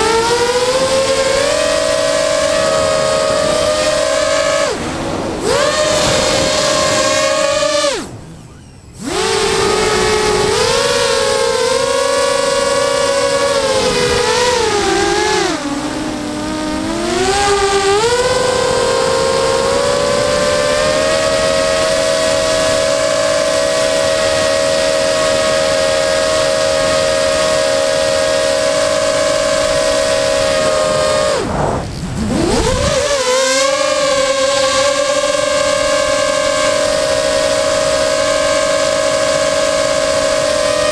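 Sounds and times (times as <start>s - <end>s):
drone motors whining: 0.0s - 40.9s.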